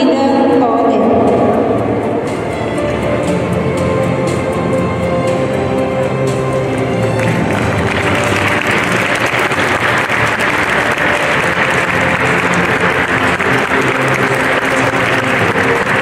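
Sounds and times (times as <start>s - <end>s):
faint music: 0.0s - 16.0s
audience applauding: 6.9s - 16.0s.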